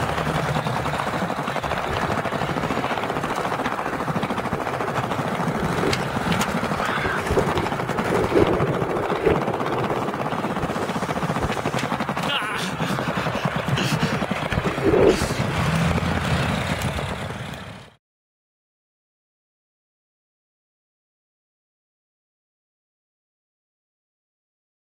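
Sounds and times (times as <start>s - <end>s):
skateboard wheels rolling on tiles: 0.0s - 10.0s.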